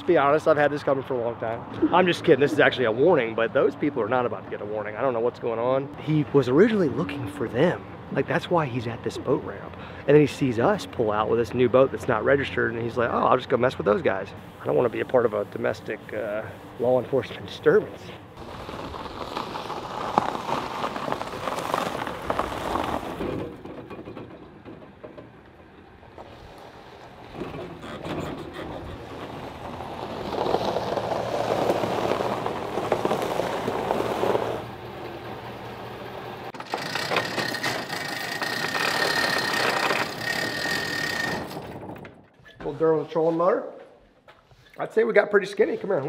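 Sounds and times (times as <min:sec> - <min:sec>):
roll-up door hand chain pulled: 0:36.6 - 0:42.2.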